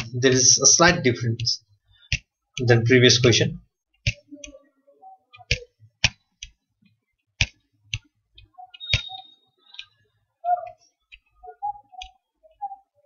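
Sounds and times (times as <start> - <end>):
computer mouse clicking: 5.3 - 10.0, 10.6 - 11.3
faint high tone: 10.4 - 13.0.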